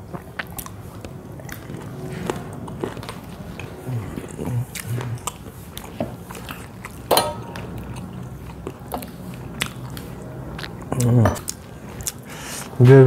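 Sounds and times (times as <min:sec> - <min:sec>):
chewing and mouth smacks: 0:00.0 - 0:12.8
brass bowl clinking on plate: 0:07.1 - 0:07.8.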